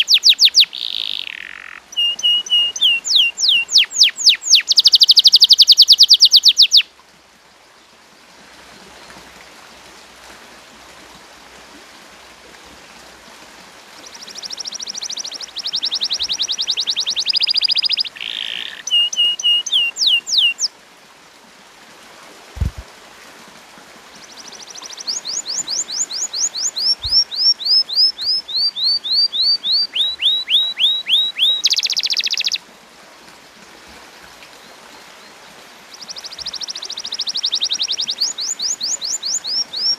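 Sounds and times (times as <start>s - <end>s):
canary singing: 0.0s - 6.8s, 14.4s - 20.7s, 24.9s - 32.6s, 36.2s - 39.9s.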